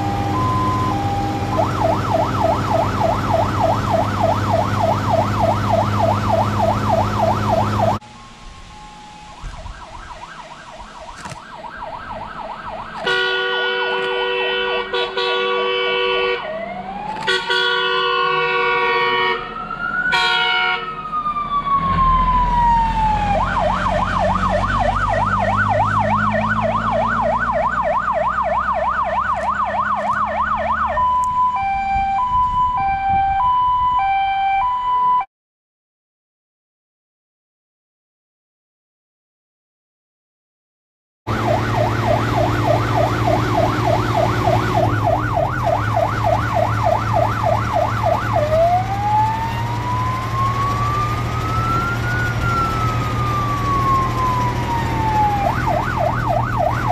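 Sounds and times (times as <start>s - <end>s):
diesel engine rumbling: 0.0s - 34.0s, 41.3s - 56.9s
fire truck siren: 0.0s - 35.3s, 41.3s - 56.9s
fire truck horn blasts: 13.0s - 16.6s, 17.2s - 21.0s.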